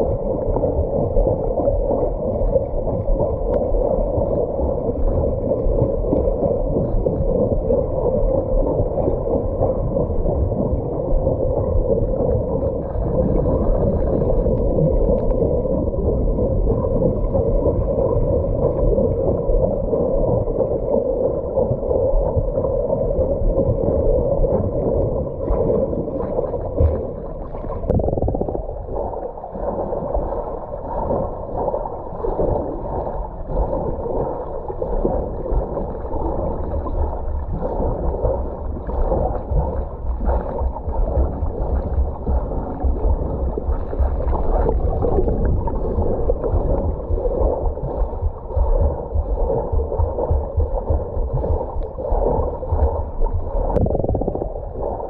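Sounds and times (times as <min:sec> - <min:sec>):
underwater swimmer kicks churning: 0:34.8 - 0:55.0.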